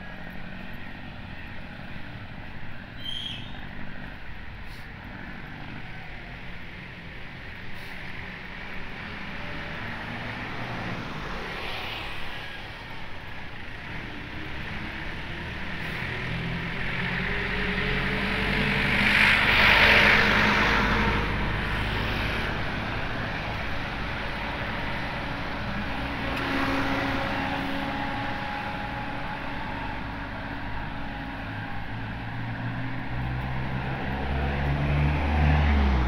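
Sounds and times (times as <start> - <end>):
street traffic noise: 0.0 - 36.0
engine passing by: 7.8 - 13.0, 13.6 - 36.0.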